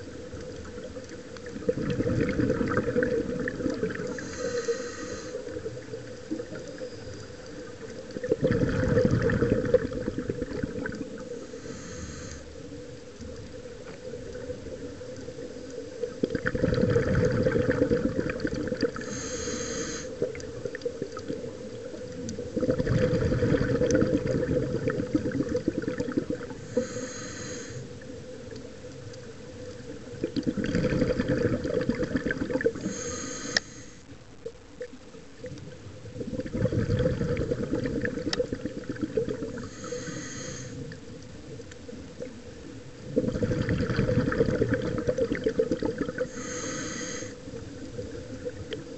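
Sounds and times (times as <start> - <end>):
low underwater drone: 0.0 - 48.9
exhaled bubbles rushing: 0.6 - 4.2, 7.9 - 11.3, 16.0 - 19.1, 22.4 - 26.6, 30.2 - 32.9, 36.0 - 39.7, 43.1 - 46.3
diver breathing through regulator: 4.0 - 5.7, 11.3 - 12.6, 19.0 - 20.2, 26.5 - 28.0, 32.6 - 34.1, 39.6 - 40.9, 46.2 - 47.5.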